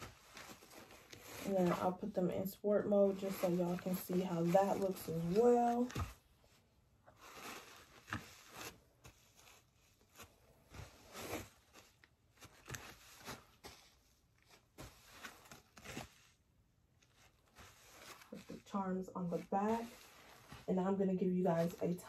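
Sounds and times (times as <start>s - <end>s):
scuffing and rustling of clogs: 7.2s - 16.2s, 17.0s - 22.0s.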